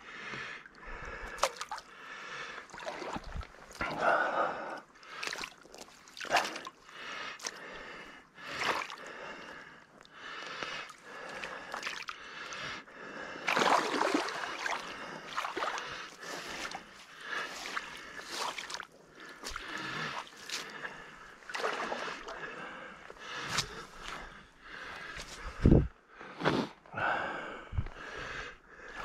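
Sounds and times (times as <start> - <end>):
boot squelching in mud and water: 1.4 - 1.8, 2.7 - 4.0, 5.1 - 6.7, 7.4 - 7.6, 8.5 - 9.1, 11.7 - 12.2, 13.5 - 22.4, 23.2 - 24.3.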